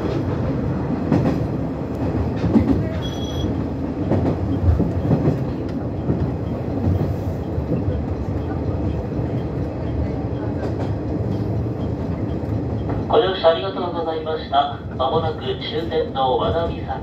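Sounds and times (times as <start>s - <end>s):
train rumbling on track: 0.0s - 17.0s.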